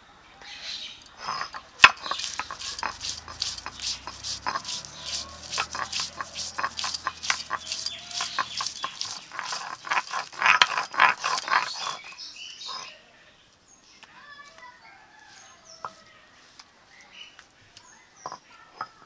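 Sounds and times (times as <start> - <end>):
stone roller scraping on grinding slab: 1.0 - 12.9.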